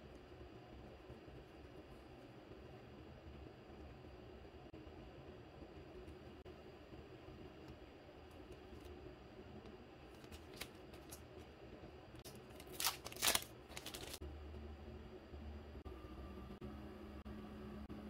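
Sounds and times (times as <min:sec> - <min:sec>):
paper stickers rustling and crinkling: 0:10.2 - 0:11.2, 0:12.2 - 0:14.2.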